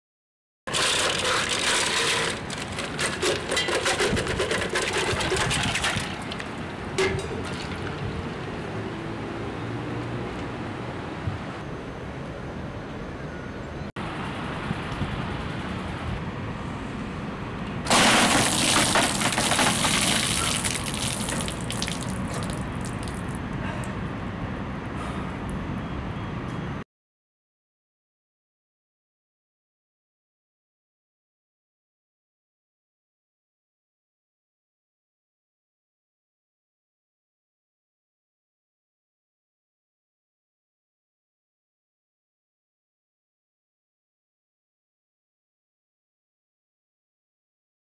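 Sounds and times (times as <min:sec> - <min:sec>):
ice cubes clattering into metal pail: 0:00.7 - 0:07.9, 0:17.9 - 0:23.0
gush of water splashing down: 0:17.9 - 0:23.4
water drips and splashes: 0:18.4 - 0:23.4.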